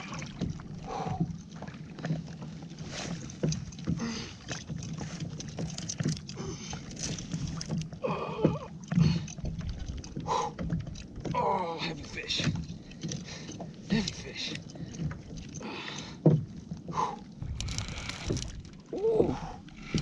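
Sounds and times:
water splashing against kayak hull: 0:00.0 - 0:20.0
fishing gear clicks and knocks: 0:00.3 - 0:20.0.

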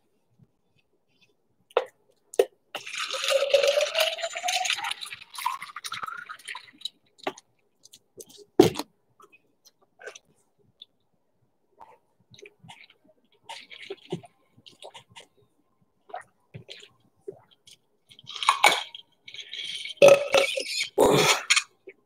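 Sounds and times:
water pouring into glass: 0:02.8 - 0:06.9.

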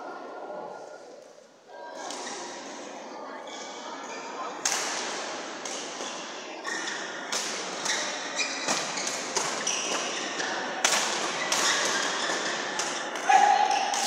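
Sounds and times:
rackets hitting shuttlecock: 0:04.6 - 0:14.0
shoes squeaking on court: 0:07.8 - 0:10.7.

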